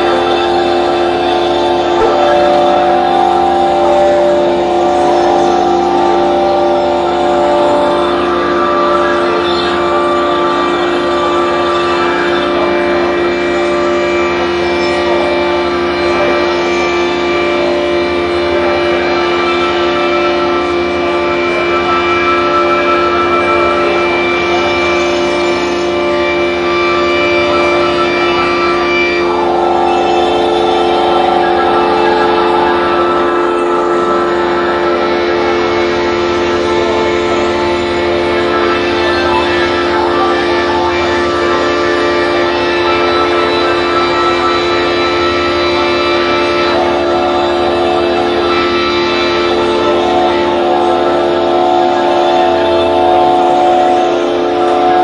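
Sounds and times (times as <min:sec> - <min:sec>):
experimental drone music: 0:00.0 - 0:55.0.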